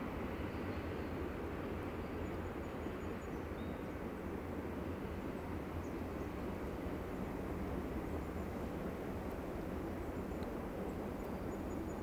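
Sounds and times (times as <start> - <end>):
freight train rumbling on rails: 0.0 - 12.0.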